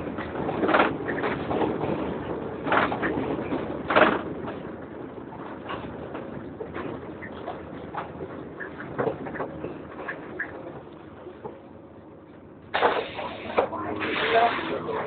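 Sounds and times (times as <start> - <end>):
bus engine cooling fan: 0.0 - 15.0
bus rattles: 0.0 - 15.0.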